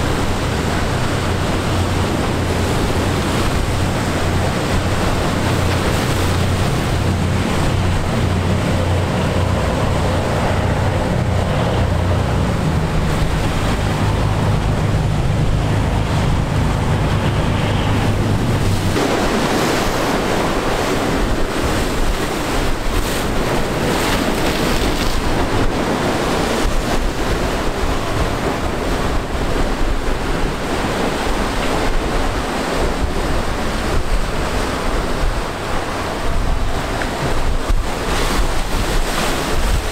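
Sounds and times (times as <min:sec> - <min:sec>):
boat diesel engines droning: 0:00.0 - 0:39.9
rushing water and waves: 0:00.0 - 0:39.9
wind buffeting microphone: 0:00.0 - 0:39.9.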